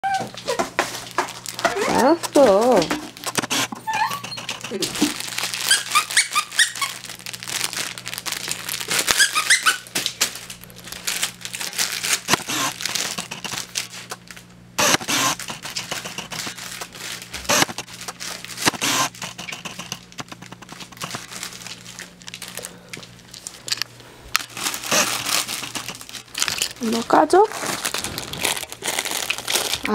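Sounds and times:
dog whining: 0.0 - 0.8, 3.6 - 5.1, 5.7 - 7.0, 9.2 - 9.8
cellophane wrapper crinkling: 0.0 - 29.9.

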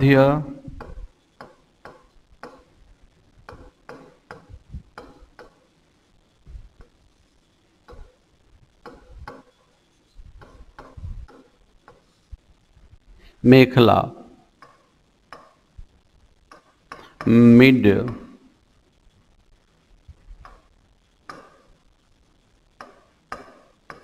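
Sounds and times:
pen tapping and scratching: 0.8 - 2.8, 3.5 - 5.7, 7.9 - 8.2, 8.8 - 9.6, 10.4 - 12.2, 14.6 - 15.6, 16.5 - 17.2, 21.3 - 21.7, 22.8 - 24.0.

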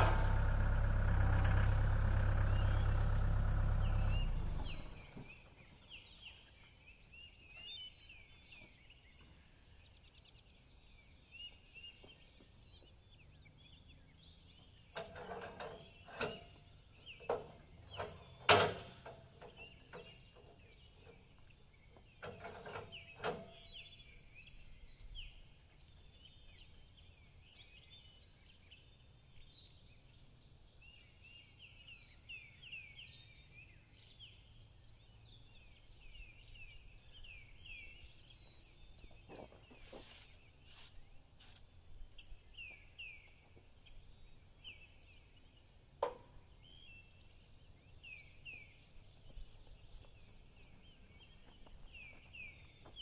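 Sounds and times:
small birds chirping: 0.0 - 53.0
sharp knocks and clanks: 14.9 - 16.6, 17.2 - 21.2.

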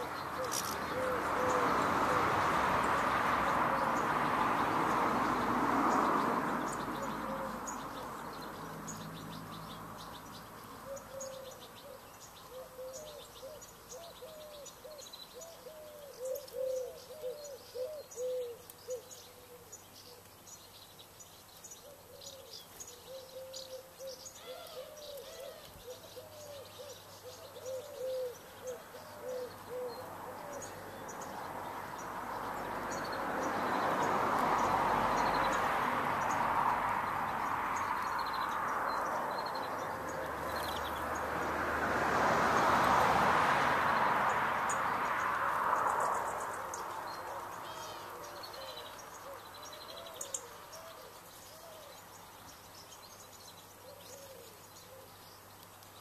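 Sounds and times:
small birds chirping: 0.0 - 56.0
pigeon cooing: 0.4 - 2.2, 7.0 - 7.7, 10.8 - 19.7, 23.1 - 30.8.

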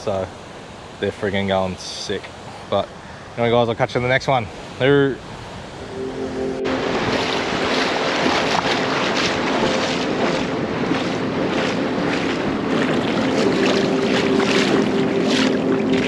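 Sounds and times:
surf washing over sand: 0.0 - 16.0
small splashes: 6.8 - 16.0.

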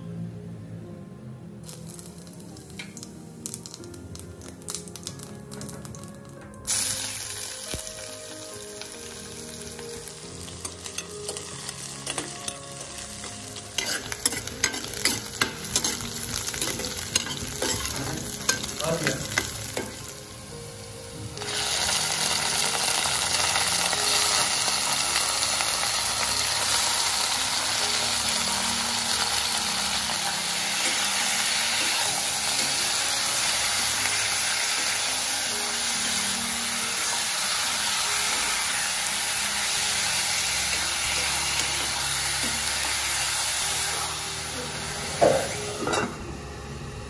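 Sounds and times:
chicken sizzling in hot oil: 1.6 - 46.0
metal spatula stirring: 10.6 - 20.0.

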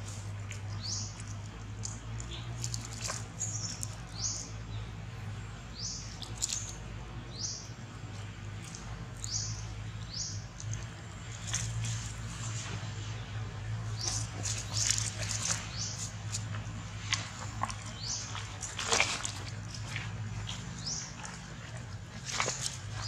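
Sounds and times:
bird chirping: 0.7 - 4.9, 5.7 - 12.0.

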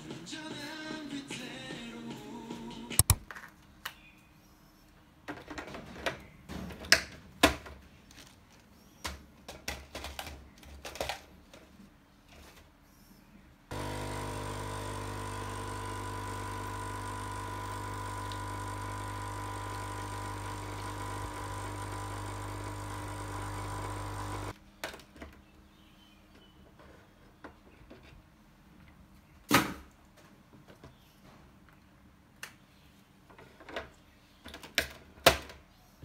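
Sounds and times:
coffee machine pump buzzing: 13.7 - 24.6.

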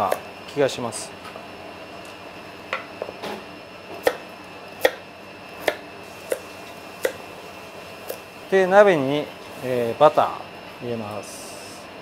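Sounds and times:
knife chopping on cutting board: 3.9 - 7.2.

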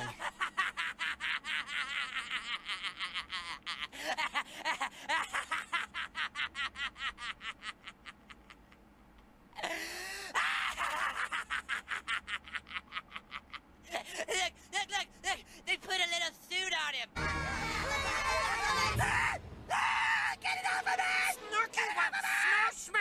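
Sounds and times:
cartoon boy giggling: 0.0 - 8.8, 9.6 - 14.6
drawn-out laugh: 0.0 - 8.9, 9.6 - 14.5.

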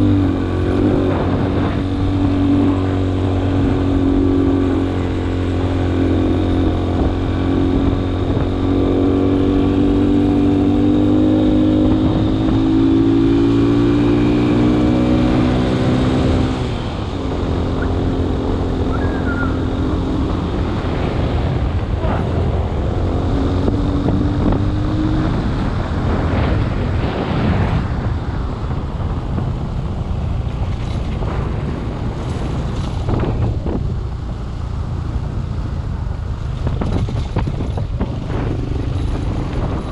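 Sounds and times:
vehicle engine revving: 0.0 - 29.6
vehicle rattling over rough ground: 0.0 - 39.9.

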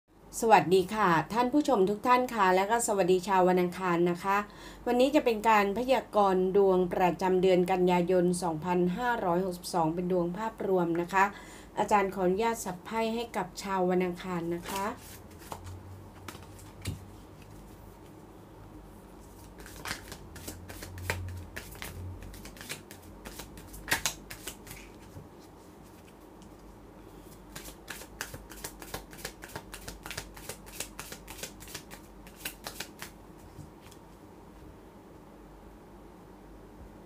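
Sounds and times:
cards shuffling and clicking: 14.6 - 17.7, 19.2 - 25.2, 27.4 - 34.1
card snap: 19.6 - 24.9.

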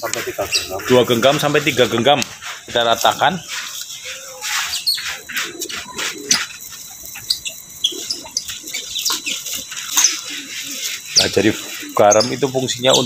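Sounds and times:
bird chirps: 0.0 - 13.0
grains rustling in plastic basin: 0.1 - 7.3, 8.5 - 13.0.

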